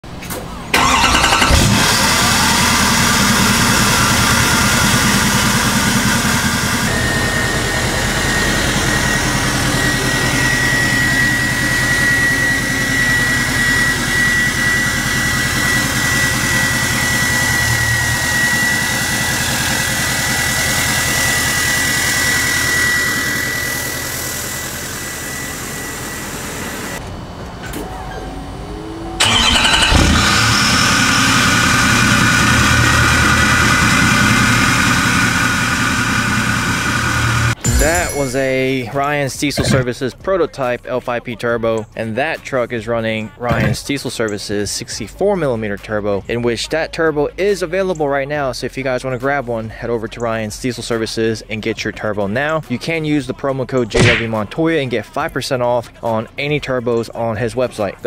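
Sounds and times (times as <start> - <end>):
pickup truck engine starting and idling: 0.1 - 27.8, 28.4 - 41.2.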